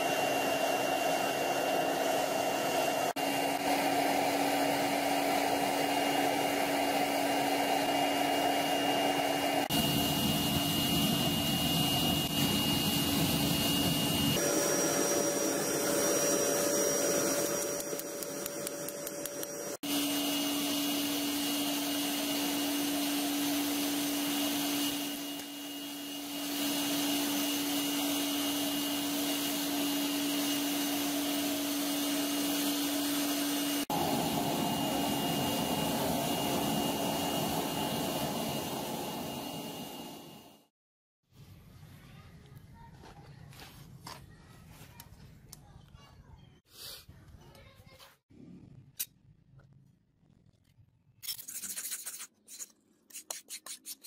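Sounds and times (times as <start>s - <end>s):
gas forge burner roaring: 0.0s - 40.7s.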